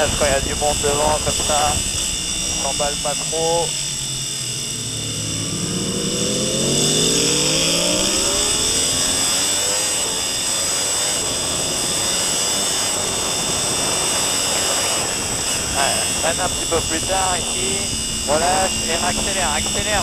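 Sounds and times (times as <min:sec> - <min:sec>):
wind noise on microphone: 0:00.0 - 0:03.4, 0:08.2 - 0:20.0
motorcycle engine revving: 0:00.0 - 0:20.0.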